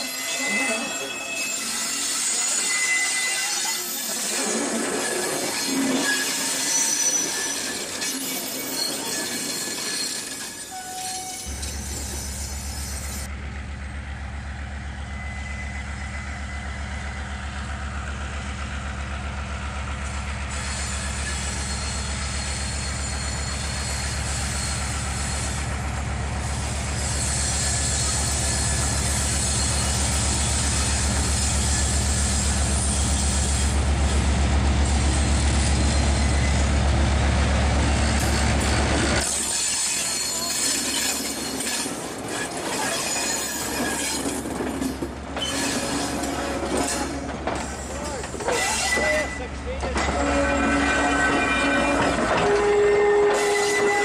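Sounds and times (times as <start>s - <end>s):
train rolling past: 0.0s - 54.0s
diesel locomotive engine hum: 10.7s - 54.0s.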